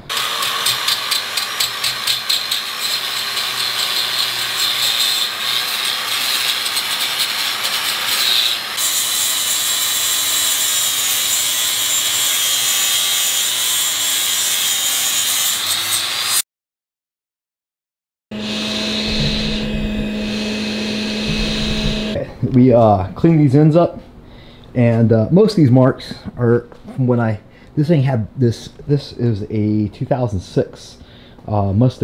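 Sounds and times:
angle grinder grinding steel: 0.0s - 16.4s, 18.3s - 22.2s.

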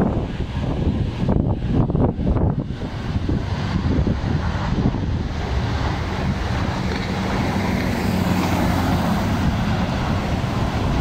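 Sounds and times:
jet engines: 0.0s - 11.0s
wind buffeting microphone: 0.0s - 11.0s.

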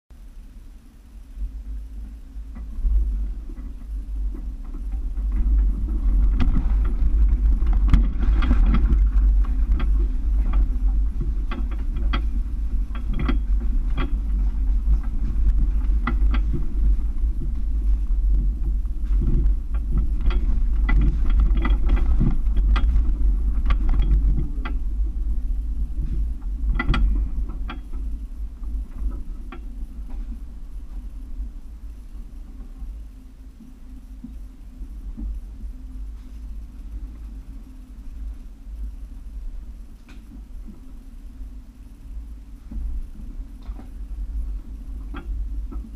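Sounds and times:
low engine rumble: 0.1s - 45.9s.

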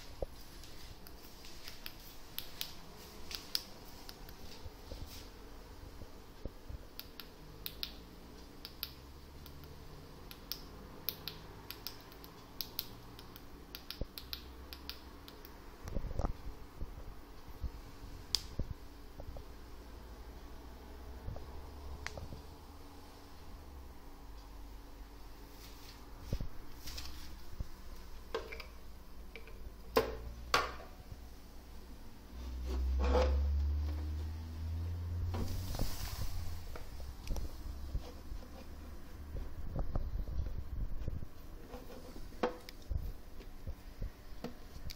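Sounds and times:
faint low steady hum: 0.0s - 44.9s
small sharp clicks: 8.6s - 16.3s.

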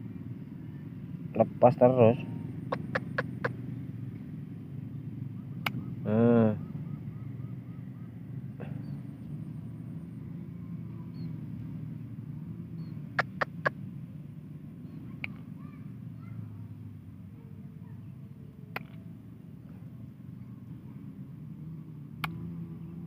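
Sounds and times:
sharp clicks: 2.7s - 3.5s, 13.2s - 13.7s, 18.7s - 19.0s.

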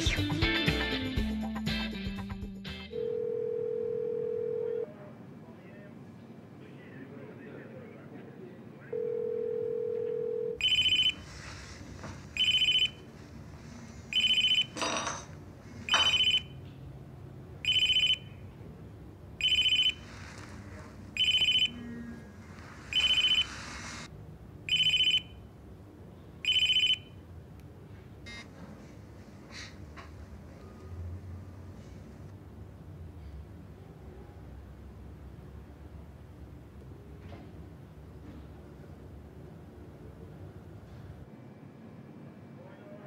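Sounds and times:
telephone ringing: 2.9s - 4.9s, 8.9s - 11.5s, 12.4s - 13.1s, 14.1s - 15.3s, 15.9s - 16.6s, 17.6s - 18.4s, 19.4s - 20.4s, 21.2s - 22.1s, 22.8s - 24.1s, 24.7s - 25.4s, 26.4s - 27.2s.

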